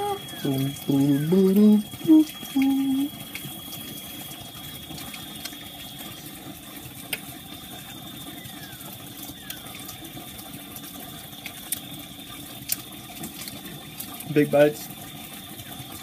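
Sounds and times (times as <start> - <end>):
thin high whine: 0.0 - 9.9.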